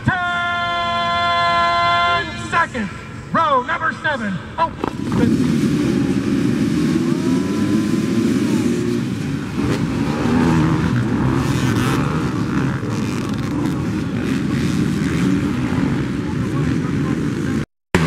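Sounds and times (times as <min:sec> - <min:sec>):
dirt bike engines revving: 0:00.0 - 0:18.0.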